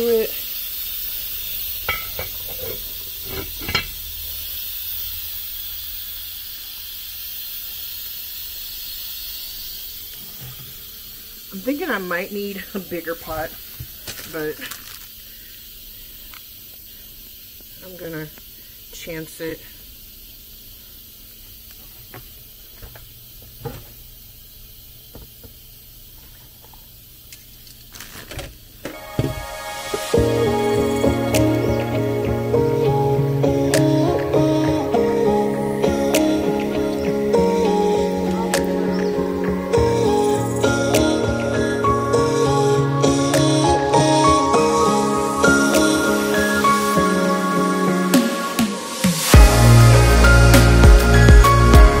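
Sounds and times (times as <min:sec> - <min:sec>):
simmering pot hissing: 0:00.0 - 0:52.0
pot lid clinking on rim: 0:01.9 - 0:04.0.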